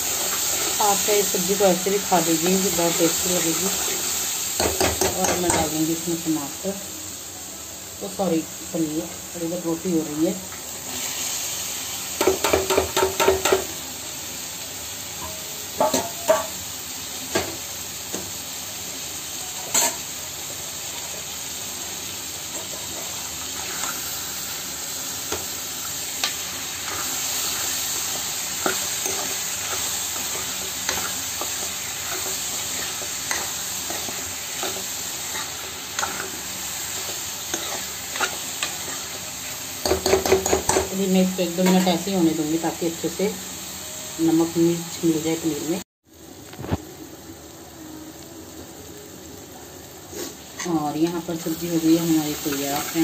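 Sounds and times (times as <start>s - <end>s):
food sizzling in a pan: 0.0s - 53.0s
spoon scraping a pan: 19.7s - 20.1s, 26.2s - 39.2s.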